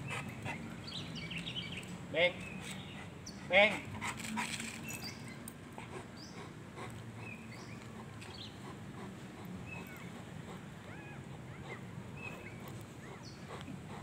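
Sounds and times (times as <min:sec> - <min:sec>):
dog whimpering: 0:09.7 - 0:13.3.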